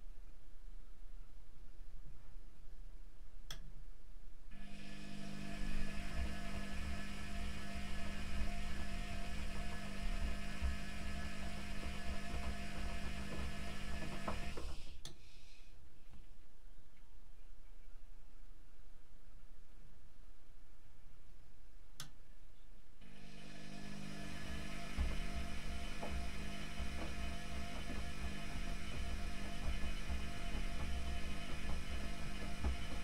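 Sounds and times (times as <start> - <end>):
washing machine drum humming: 4.6 - 15.0, 23.0 - 33.0.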